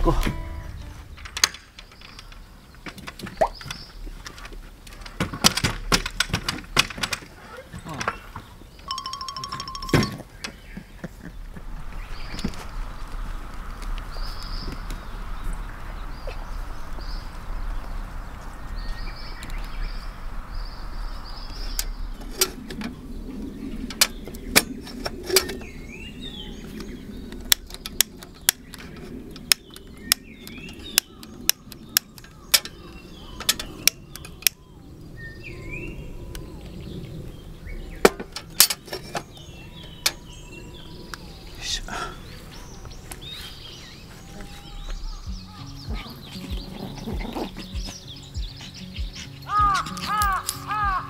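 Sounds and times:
rumbling rustle of gear: 0.0 - 8.9
small birds chirping: 0.0 - 51.0
sharp clicks and knocks: 0.2 - 7.4.

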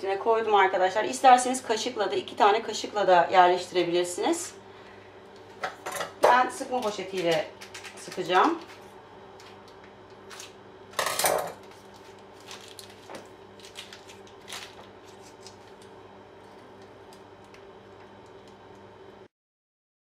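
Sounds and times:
faint steady hum: 0.0 - 19.3
plastic piping bag rustling: 11.6 - 17.6.

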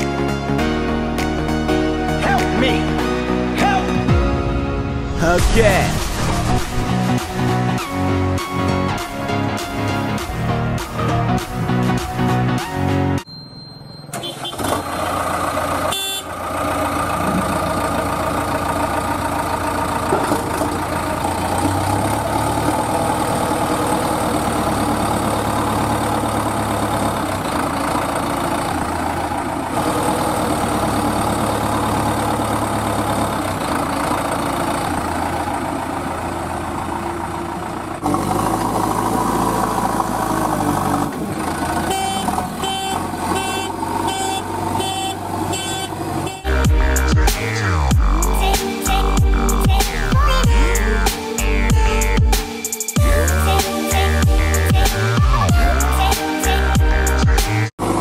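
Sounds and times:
heavy vehicle engine running: 0.0 - 13.2, 13.8 - 58.0.

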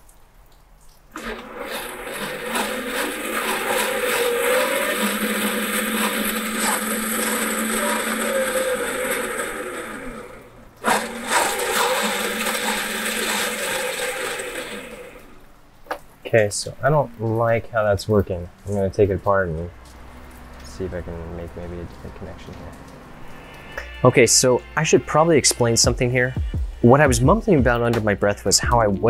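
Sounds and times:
electric motors and gearboxes running: 1.2 - 15.5.

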